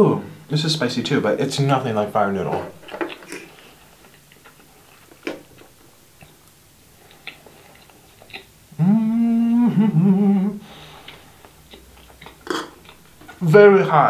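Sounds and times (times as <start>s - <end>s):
mouth clicks from chewing: 4.1s - 8.5s
man humming: 8.7s - 11.2s.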